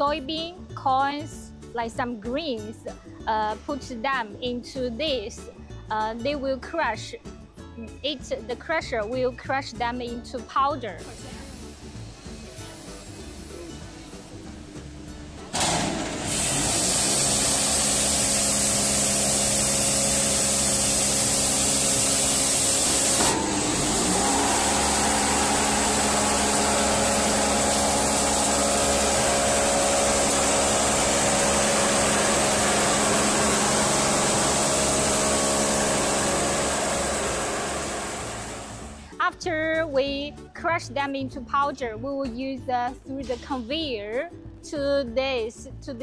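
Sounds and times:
electric motor hum: 11.1s - 39.1s
hammer mill grinding grain: 11.1s - 39.1s.

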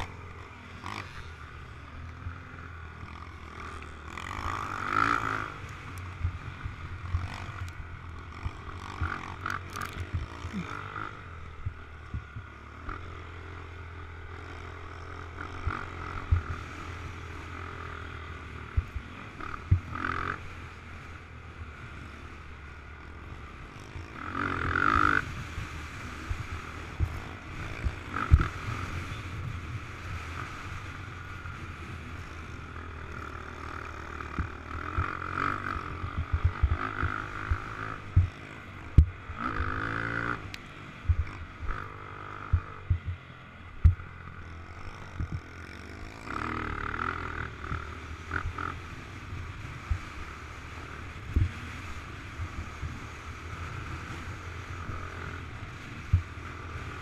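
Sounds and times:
quad engine revving: 0.0s - 57.0s
short low thumps: 42.5s - 44.1s.

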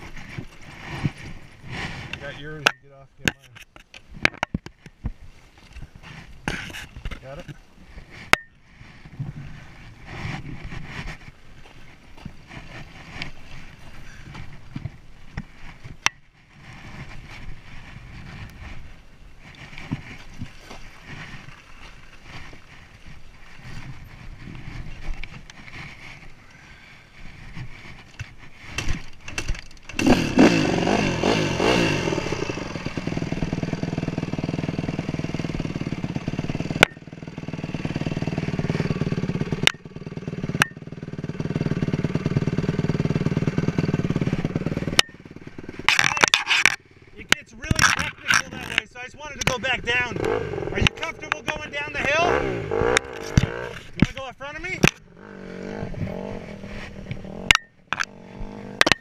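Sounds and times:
dirt bike engine revving and idling: 0.1s - 2.8s, 6.1s - 20.2s, 27.2s - 59.0s
wind noise: 3.5s - 32.2s
handling noise: 44.2s - 55.1s.

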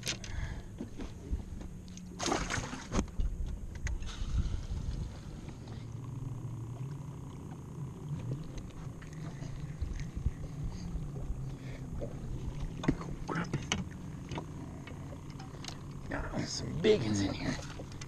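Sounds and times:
water noise: 0.0s - 18.0s
wind: 0.0s - 18.0s
electric trolling motor humming: 3.0s - 18.0s.

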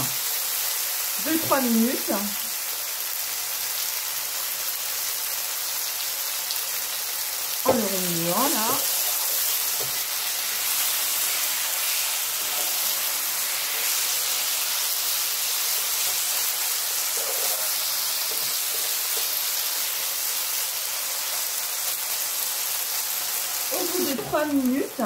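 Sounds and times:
chicken sizzling in a frying pan: 0.0s - 25.0s
wooden spatula scraping: 7.7s - 19.4s.

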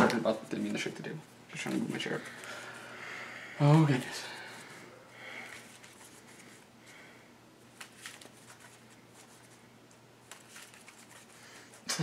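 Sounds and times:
low steady hum: 0.0s - 12.0s
trading cards rustling: 3.9s - 6.7s, 7.7s - 11.9s.

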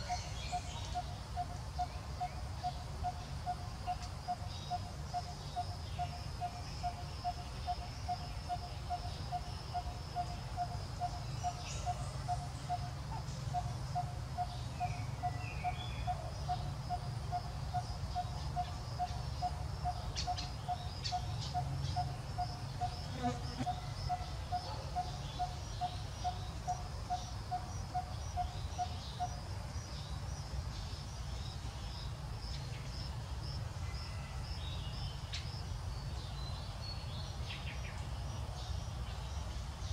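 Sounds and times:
high insect buzz: 16.4s - 24.4s.

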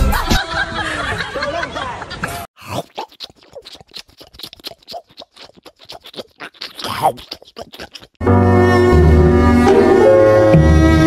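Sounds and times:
cat licking wet lapping: 2.8s - 8.2s.

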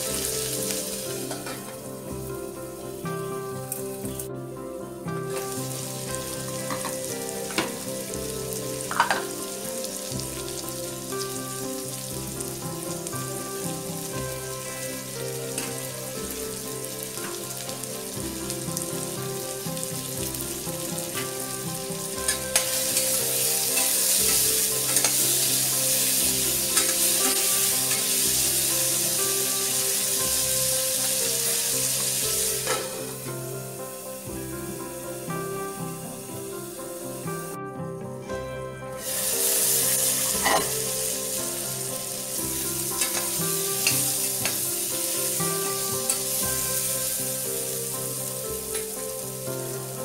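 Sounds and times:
food sizzling in a saucepan: 0.0s - 4.3s, 5.0s - 37.6s, 38.8s - 50.0s.

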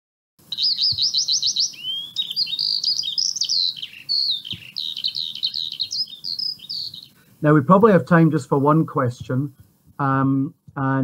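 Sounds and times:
bird chirping and whistling: 0.5s - 7.2s.

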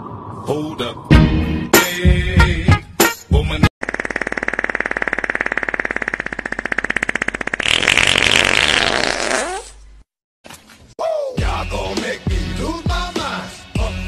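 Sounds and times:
person farting: 4.3s - 9.8s.

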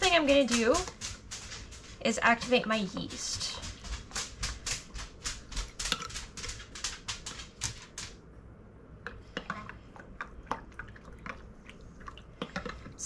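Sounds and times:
quick regular clicking and tapping: 0.1s - 8.2s.

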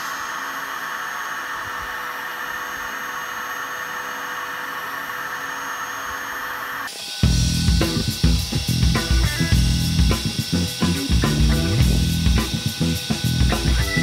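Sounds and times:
router whirring cutting wood: 0.0s - 14.0s
loud music with drums: 7.2s - 14.0s.

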